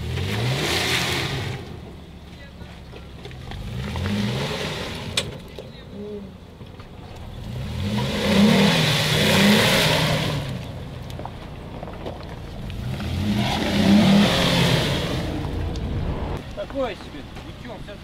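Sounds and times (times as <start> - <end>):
engine revving hard: 0.0 - 1.6, 7.4 - 10.6, 12.8 - 16.4
wheels churning in mud: 6.6 - 18.0.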